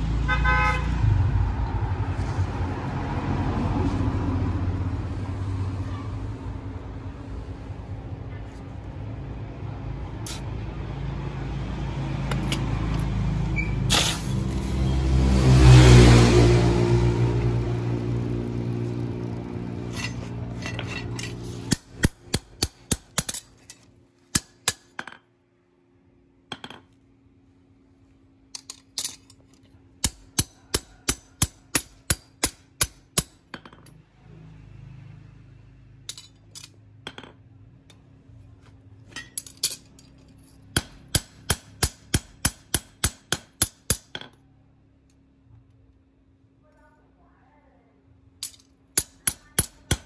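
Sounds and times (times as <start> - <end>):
low running noise: 16.7 - 22.6
hammer striking on anvil: 20.0 - 23.5, 30.0 - 33.9, 40.7 - 44.4, 48.4 - 50.0.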